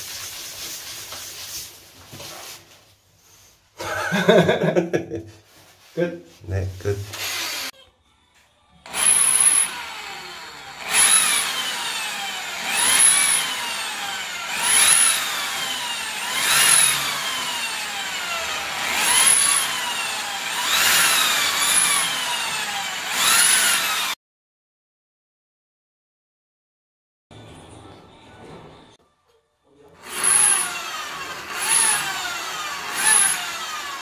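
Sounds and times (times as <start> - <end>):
electric drill whining: 7.1 - 7.7, 8.9 - 24.2, 30.0 - 34.0
drill bit grinding tile: 7.1 - 7.8, 8.9 - 24.2, 30.0 - 34.0.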